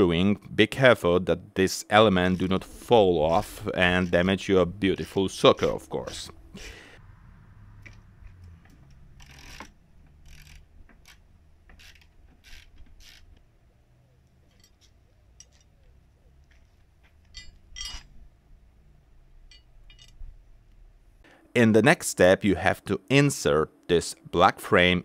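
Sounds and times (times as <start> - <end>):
metal rail clinking: 14.4 - 15.9, 17.0 - 18.4, 19.4 - 20.4.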